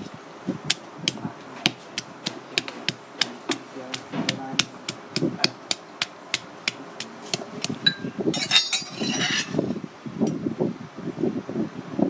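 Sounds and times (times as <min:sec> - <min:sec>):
pestle pounding in stone mortar: 0:00.7 - 0:09.1
spoon scraping in mortar: 0:07.0 - 0:09.8
metal spoon clinking on stone: 0:07.8 - 0:09.6.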